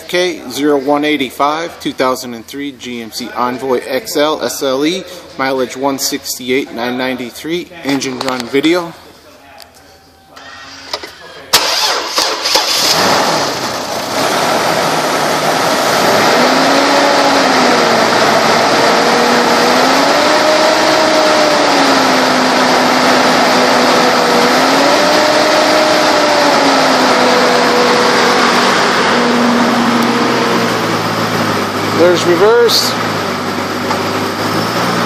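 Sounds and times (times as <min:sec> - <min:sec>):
car engine idling with whine: 0:12.8 - 0:35.0.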